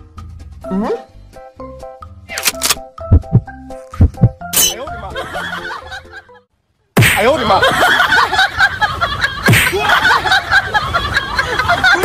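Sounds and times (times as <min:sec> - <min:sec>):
sharp slapping thumps: 0:02.6 - 0:04.8.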